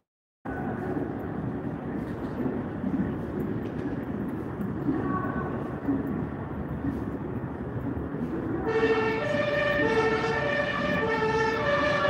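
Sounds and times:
background rumble: 0:00.5 - 0:12.0
two-tone emergency siren: 0:08.7 - 0:12.0.

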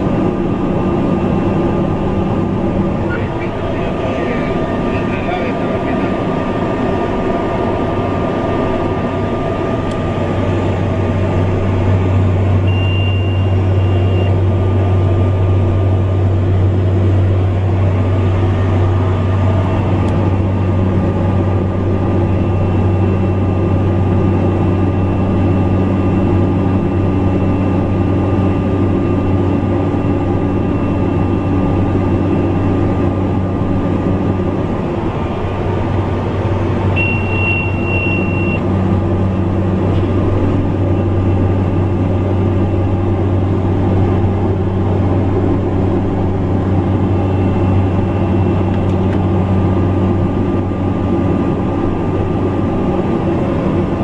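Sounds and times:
propeller aircraft engine drone: 0:00.0 - 0:54.0
faint high tone: 0:12.7 - 0:14.3.

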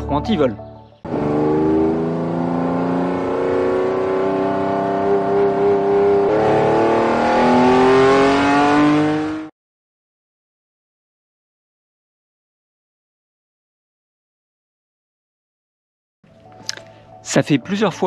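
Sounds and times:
car engine accelerating hard: 0:01.1 - 0:09.5.

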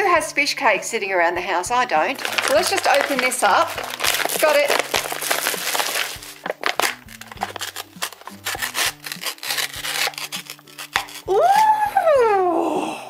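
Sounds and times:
plastic packaging rustling: 0:02.1 - 0:11.3
woman saying ooh: 0:11.3 - 0:13.0.

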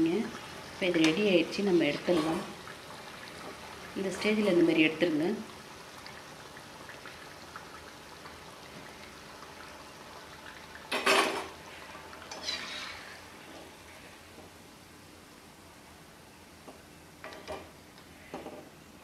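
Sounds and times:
oil sizzling: 0:00.0 - 0:14.4.

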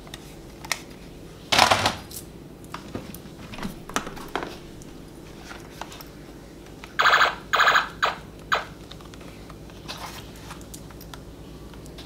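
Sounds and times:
plastic handling knocks: 0:03.6 - 0:04.6
toy gun electronic firing: 0:07.0 - 0:08.8.

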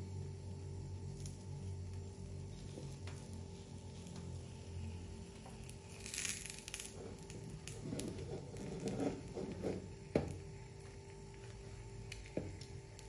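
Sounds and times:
frying oil hiss: 0:00.0 - 0:13.0
spatula scraping frying pan: 0:07.8 - 0:09.9.

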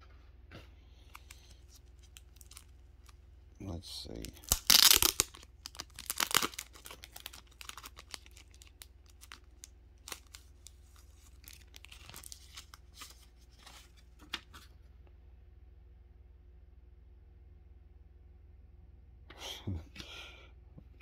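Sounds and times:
package tearing open: 0:01.1 - 0:03.2, 0:04.2 - 0:14.0
packaging crinkling: 0:01.1 - 0:03.2, 0:04.1 - 0:14.6.

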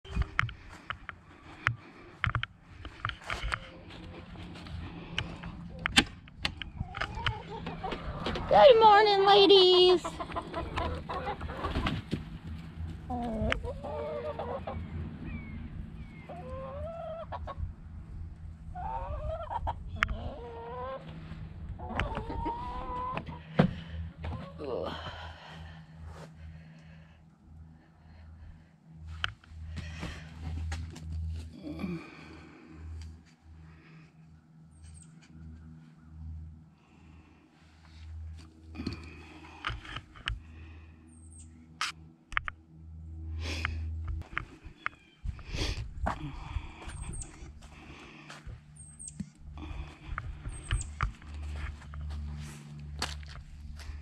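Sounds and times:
hens clucking: 0:00.1 - 0:15.0, 0:16.1 - 0:17.7, 0:18.7 - 0:24.8
low rumble: 0:10.1 - 0:54.0.

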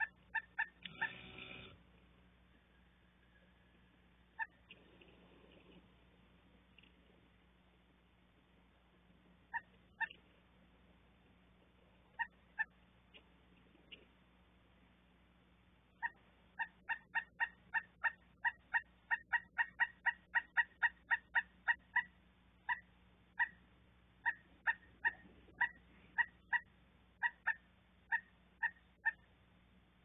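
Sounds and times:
woodpecker calling: 0:00.0 - 0:01.8, 0:02.5 - 0:05.8, 0:09.5 - 0:10.3, 0:12.1 - 0:14.0, 0:15.9 - 0:23.6, 0:24.2 - 0:29.3.

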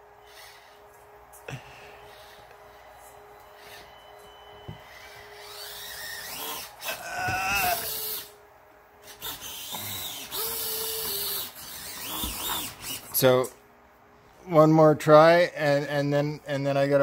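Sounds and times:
small electric motor whining: 0:04.8 - 0:08.4, 0:09.0 - 0:13.2.

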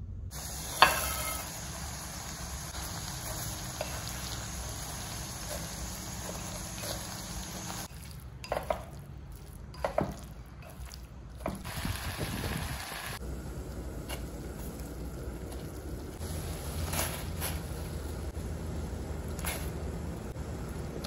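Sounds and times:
water boiling in pot: 0:00.3 - 0:19.6
chopsticks stirring in sizzling pot: 0:00.6 - 0:11.7.

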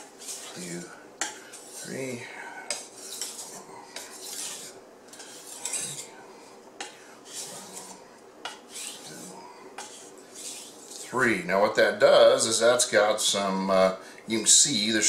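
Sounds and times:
knife scraping on a whetstone: 0:00.0 - 0:02.1, 0:02.7 - 0:06.2, 0:06.8 - 0:11.2.

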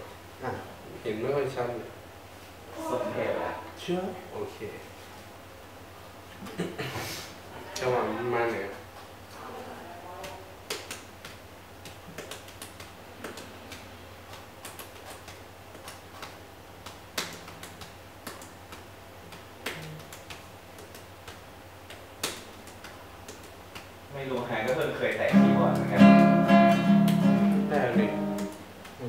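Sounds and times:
low steady hum: 0:00.0 - 0:29.0
small clicks and taps: 0:10.2 - 0:25.2.

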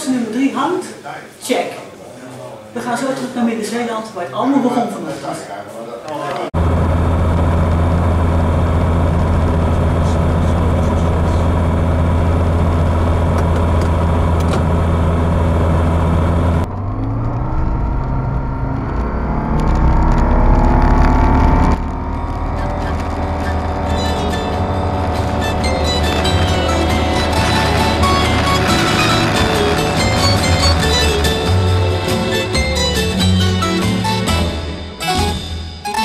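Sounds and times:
light aircraft engine droning: 0:06.6 - 0:32.3.

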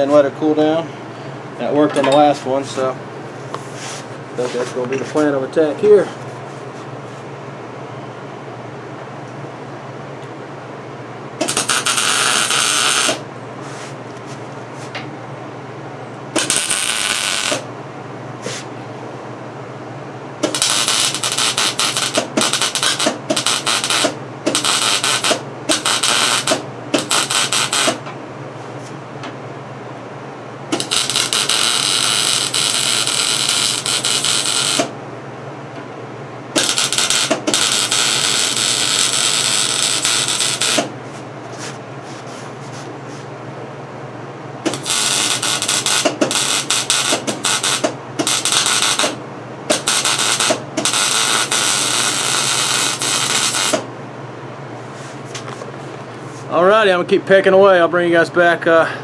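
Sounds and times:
steady low hum: 0:00.0 - 0:59.0
welding arc crackling: 0:11.4 - 0:13.2, 0:16.4 - 0:17.7, 0:20.4 - 0:28.0, 0:30.7 - 0:34.9, 0:36.6 - 0:40.9, 0:44.7 - 0:53.9.

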